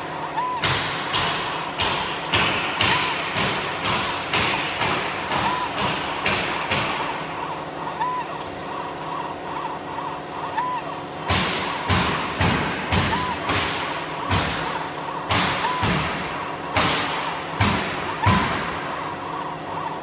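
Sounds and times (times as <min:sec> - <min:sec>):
steady hum: 0:00.0 - 0:20.0
sharp knocks: 0:00.6 - 0:07.2.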